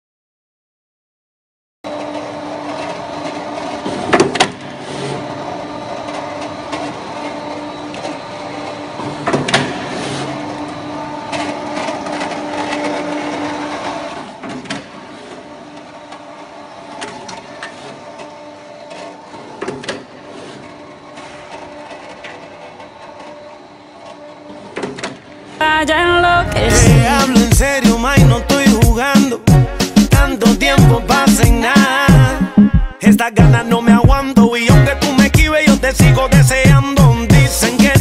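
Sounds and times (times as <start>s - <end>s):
machine hum: 25.5s - 38.0s.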